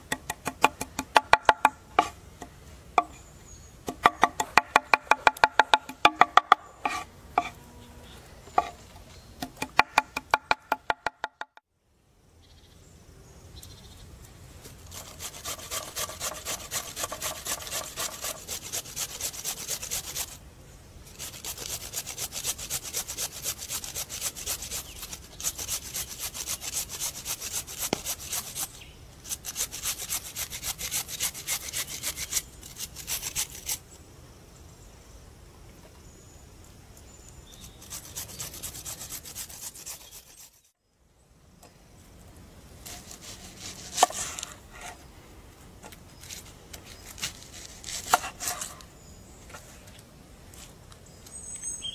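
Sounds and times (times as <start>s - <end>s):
carrot grated on metal grater: 14.9s - 20.3s.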